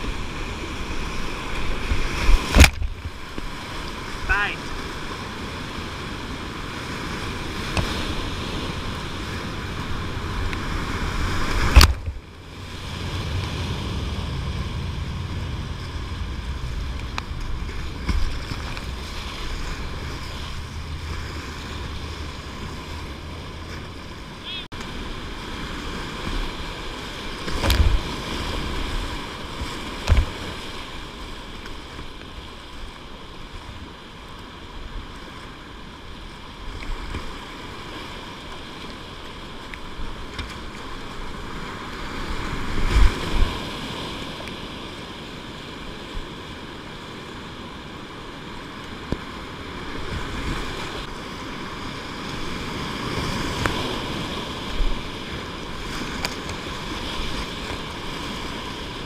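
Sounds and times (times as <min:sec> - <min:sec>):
whitewater rapids rushing: 0:00.0 - 0:25.4
water splashing against boat: 0:00.0 - 0:59.0.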